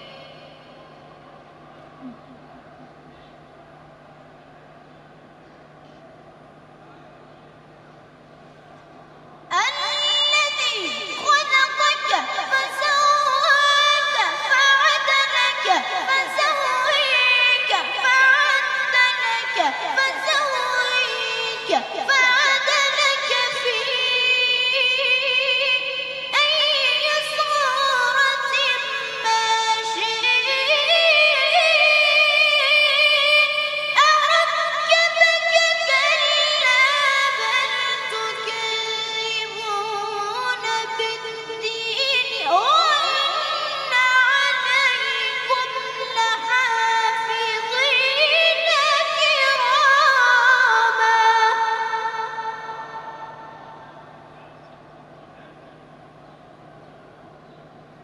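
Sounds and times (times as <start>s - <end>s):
boy reciting in melodic sung style: 0.0s - 0.9s, 9.5s - 53.8s.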